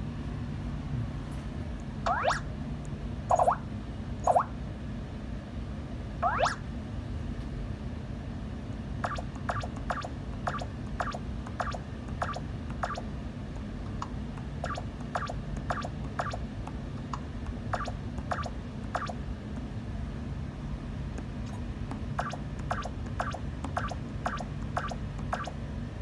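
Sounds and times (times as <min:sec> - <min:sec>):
steady low hum: 0:00.0 - 0:26.0
rising sound effect: 0:02.1 - 0:02.5, 0:06.2 - 0:06.6.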